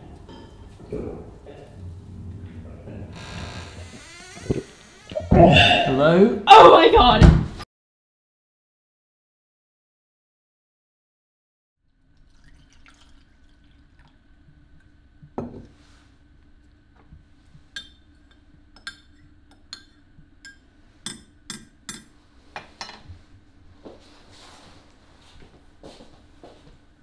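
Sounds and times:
metal spoon clinking in ceramic mug: 17.8s - 22.1s.

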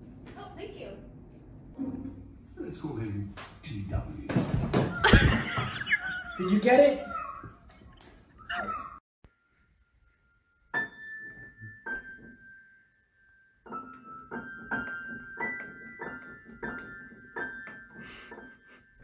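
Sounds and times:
piano high notes: 1.8s - 3.7s.

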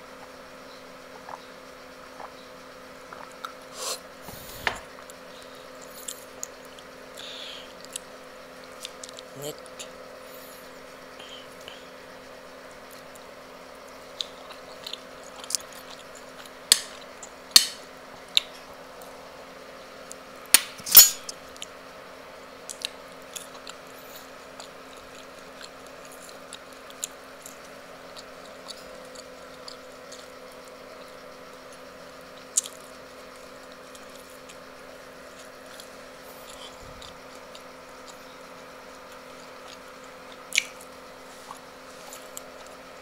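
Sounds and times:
steady low hum: 0.0s - 43.0s
wet chewing and lip smacks: 32.5s - 32.9s, 35.3s - 38.4s, 39.1s - 40.9s.

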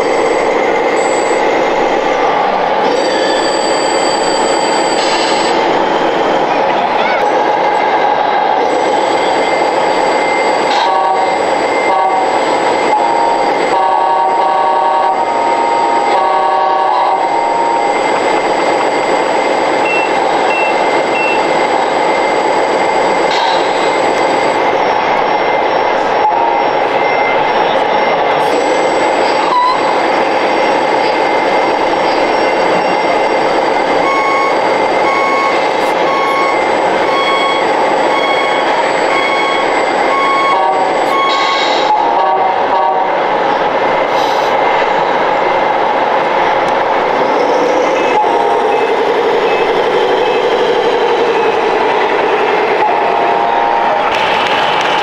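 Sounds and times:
electronic warning beep: 0.0s - 1.6s, 2.9s - 5.6s, 8.7s - 42.3s, 47.8s - 53.2s
model truck sound modules din: 8.6s - 42.8s
short high beeps: 34.0s - 42.1s.

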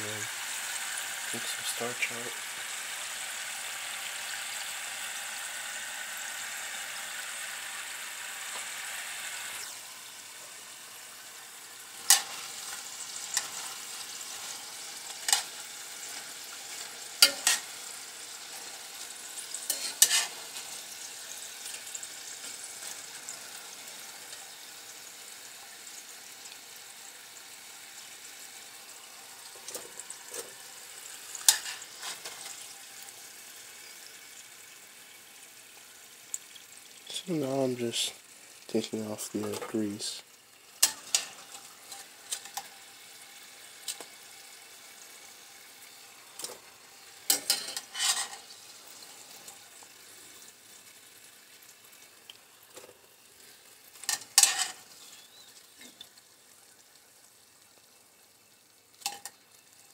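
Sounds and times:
fries sizzling in hot oil: 0.0s - 59.9s
metal tongs clinking on pan: 12.0s - 12.5s, 15.1s - 15.5s, 17.2s - 17.7s, 19.6s - 20.4s, 31.4s - 32.5s, 40.8s - 42.7s, 47.3s - 48.5s, 54.0s - 54.8s, 59.0s - 59.4s.

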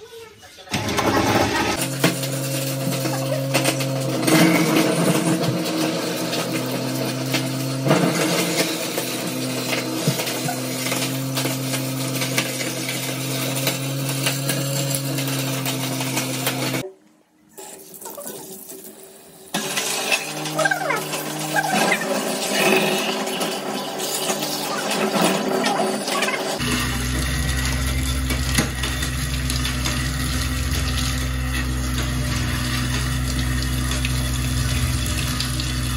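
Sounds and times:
waste disposal motor hum: 0.6s - 16.8s, 19.5s - 35.9s
food scraps being ground: 1.1s - 16.8s, 19.6s - 35.9s
water pouring: 26.6s - 35.9s.

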